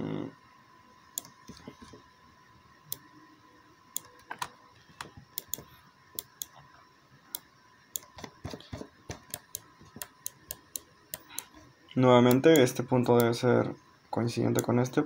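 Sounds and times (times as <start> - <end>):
faint high-pitched hum: 0.0 - 15.0
computer mouse clicking: 4.0 - 6.6, 7.3 - 11.6, 12.3 - 13.3.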